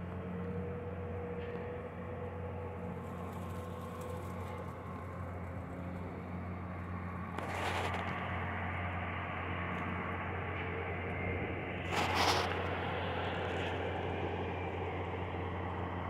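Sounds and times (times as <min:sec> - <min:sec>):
distant heavy machinery drone: 0:00.0 - 0:16.0
rushes of noise: 0:11.2 - 0:16.0.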